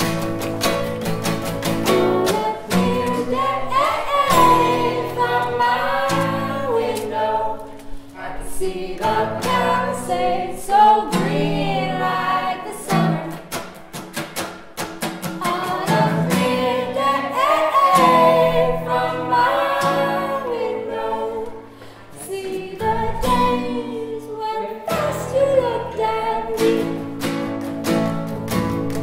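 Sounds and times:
strummed acoustic guitar: 0:00.0 - 0:08.3, 0:09.0 - 0:29.0
person singing folk song: 0:01.6 - 0:13.7, 0:15.2 - 0:27.6.

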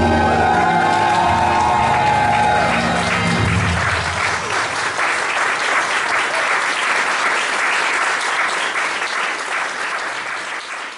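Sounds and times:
music: 0:00.0 - 0:04.6
audience applauding: 0:00.0 - 0:10.9.

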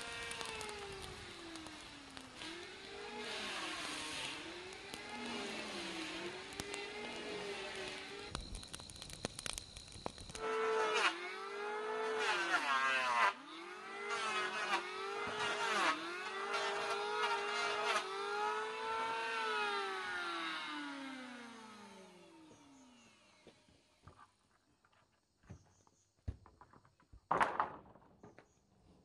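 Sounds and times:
power tool motor whining: 0:00.0 - 0:23.9.

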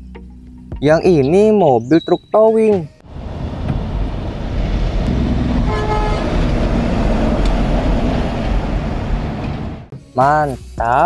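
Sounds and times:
truck engine and road rumble: 0:02.9 - 0:10.0
truck horn toot: 0:05.6 - 0:06.5.

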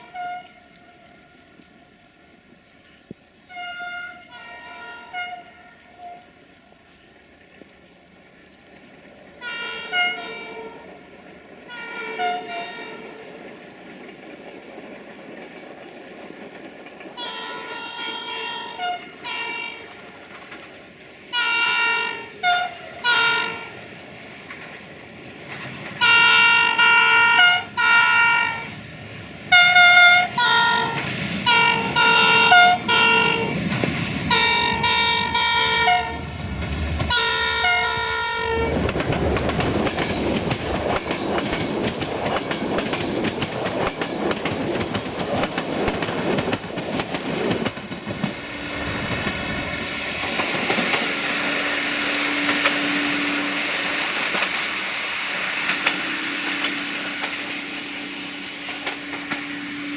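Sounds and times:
locomotive horn blasts: 0:00.0 - 0:00.8, 0:03.5 - 0:06.3, 0:09.4 - 0:10.9, 0:11.7 - 0:13.2, 0:17.2 - 0:19.9, 0:21.3 - 0:23.8, 0:26.0 - 0:28.7, 0:29.5 - 0:33.6, 0:34.3 - 0:36.4, 0:37.1 - 0:38.8
train wheels clattering on rail joints: 0:11.6 - 0:21.0, 0:23.2 - 0:27.9, 0:29.1 - 0:59.8.

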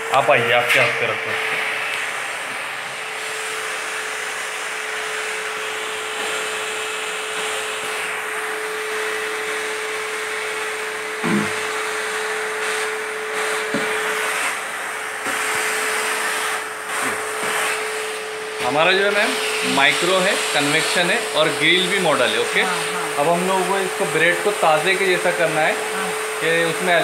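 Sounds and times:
fan air whooshing: 0:00.0 - 0:06.1.

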